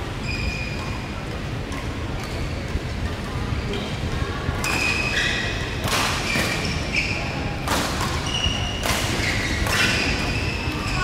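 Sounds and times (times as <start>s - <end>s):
shoes squeaking on court floor: 0.2s - 1.1s, 1.7s - 3.2s, 4.6s - 7.4s, 8.0s - 11.0s
racket hitting shuttlecock: 5.8s - 6.7s, 7.6s - 10.3s.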